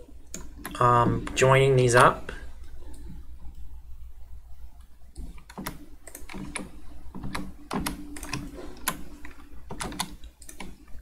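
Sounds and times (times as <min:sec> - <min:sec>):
computer keyboard keystrokes: 0:05.2 - 0:11.0.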